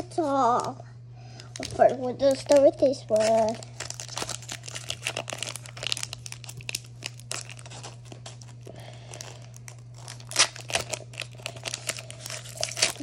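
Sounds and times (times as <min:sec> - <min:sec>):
foil wrapper crinkling and tearing: 0:01.4 - 0:13.0.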